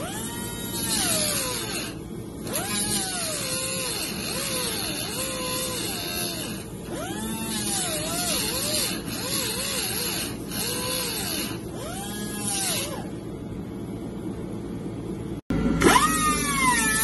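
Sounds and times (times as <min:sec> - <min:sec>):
pneumatic cut-off wheel cutting metal: 0:00.0 - 0:13.1.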